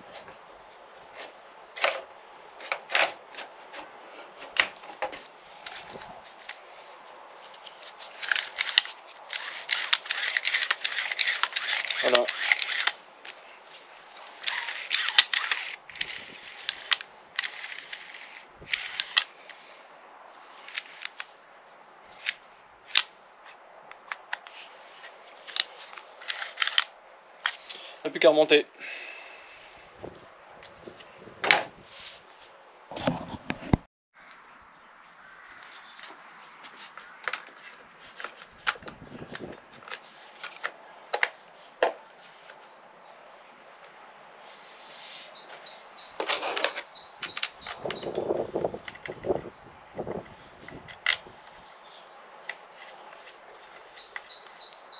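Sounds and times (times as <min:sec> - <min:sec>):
starter cord rasping: 0:08.1 - 0:13.0, 0:14.2 - 0:19.2.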